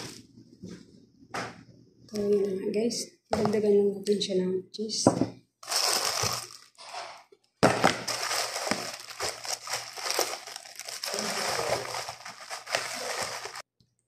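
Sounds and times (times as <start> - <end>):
plastic bag crinkling: 5.6 - 6.8, 7.8 - 13.7.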